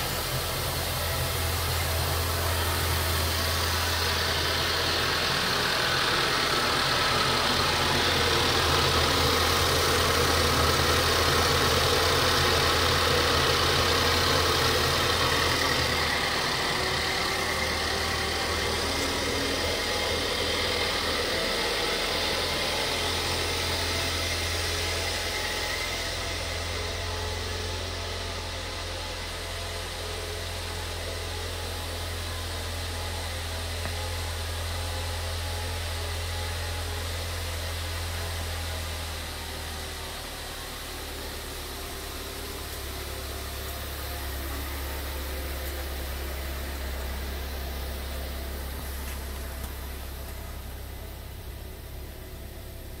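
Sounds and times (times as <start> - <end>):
car engine idling: 0.0 - 53.0.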